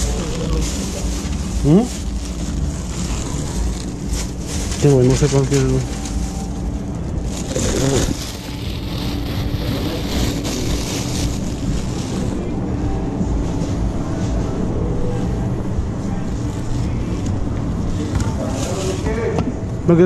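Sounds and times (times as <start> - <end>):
microphone rubbing on clothing: 0.0 - 12.4
low hum and rumble: 0.0 - 20.0.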